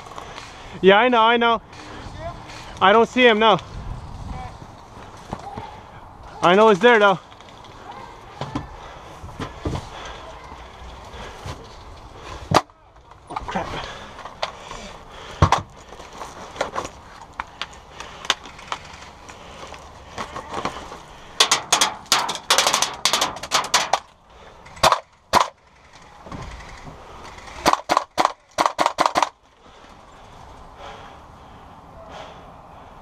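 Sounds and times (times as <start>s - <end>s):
airsoft gun firing sharp cracks: 24.8s - 25.6s, 27.6s - 29.4s.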